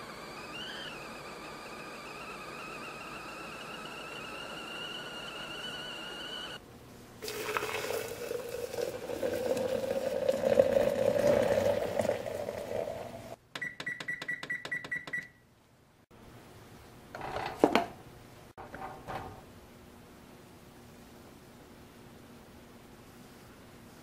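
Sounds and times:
water pouring into glass: 7.2 - 13.4
electronic keypad beeps: 13.6 - 15.4.

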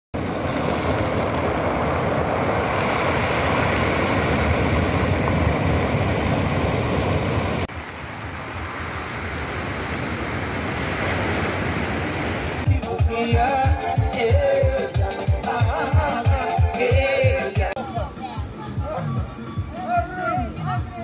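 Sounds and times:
surf washing over pebbles: 0.2 - 12.7.

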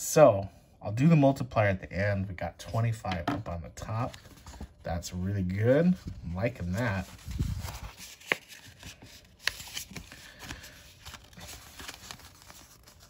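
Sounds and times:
paper card rustling: 5.6 - 13.0.

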